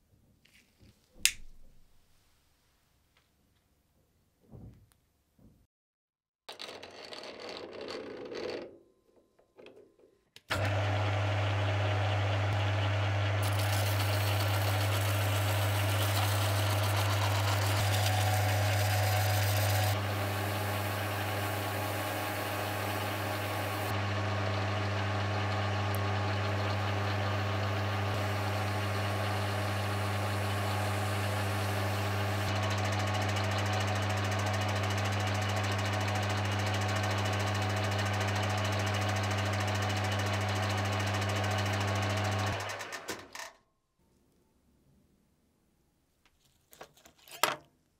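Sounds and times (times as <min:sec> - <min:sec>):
lathe humming and hissing: 0:10.5 - 0:36.4.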